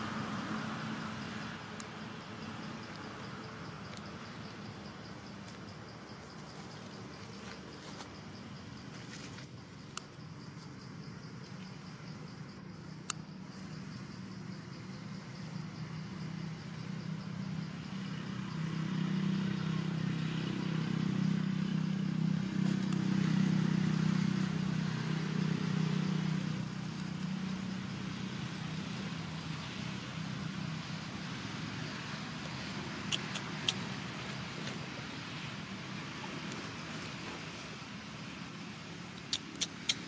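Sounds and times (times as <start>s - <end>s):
passing vehicle engine hum: 0.0s - 9.2s, 13.3s - 40.0s
sharp clicks: 39.2s - 40.0s.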